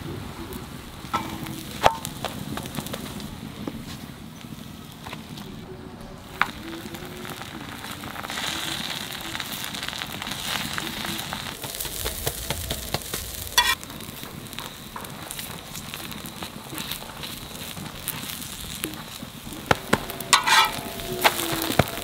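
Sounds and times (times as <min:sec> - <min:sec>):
oil sizzling on a griddle: 0:00.0 - 0:05.6, 0:06.2 - 0:22.0
ladle scraping griddle: 0:01.1 - 0:04.0, 0:07.3 - 0:22.0
metallic ladle screech: 0:20.0 - 0:22.0.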